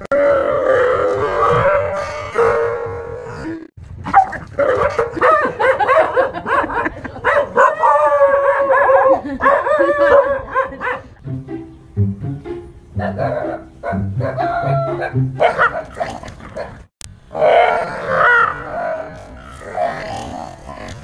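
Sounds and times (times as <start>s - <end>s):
dog barking: 4.1s - 7.9s, 8.5s - 11.1s, 13.0s - 16.7s
music: 11.2s - 15.6s.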